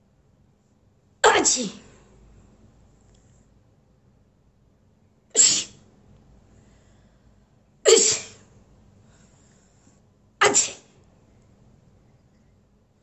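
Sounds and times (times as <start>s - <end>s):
woman sneezing: 1.2s - 1.9s, 5.4s - 5.8s, 7.9s - 8.4s, 10.4s - 10.9s.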